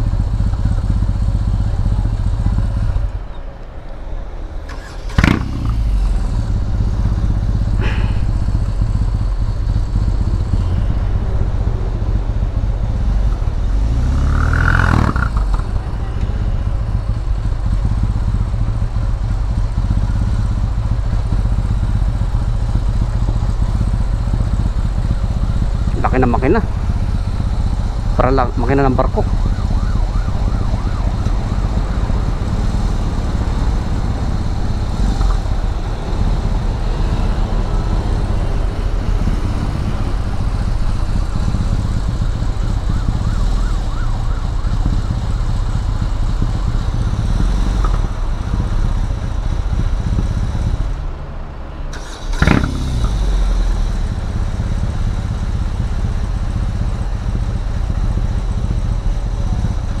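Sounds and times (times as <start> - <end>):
motorcycle engine idling: 0.0 - 60.0.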